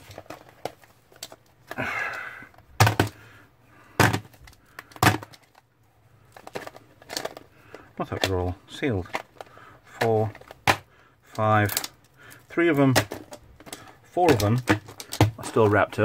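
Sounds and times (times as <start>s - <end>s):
handling rustle: 0.0s - 1.8s, 4.2s - 10.7s
plastic cases clacking: 0.0s - 16.0s.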